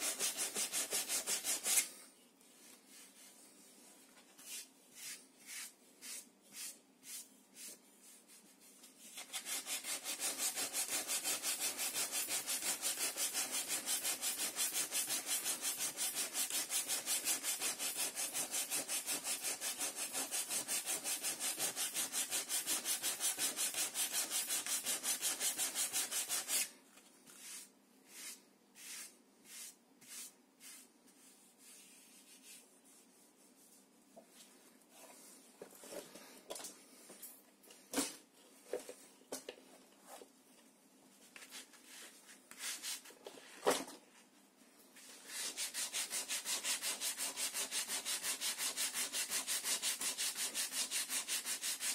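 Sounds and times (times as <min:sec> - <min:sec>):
sandpaper rubbing on wood: 0:00.0 - 0:01.9, 0:09.2 - 0:26.7, 0:45.2 - 0:51.9.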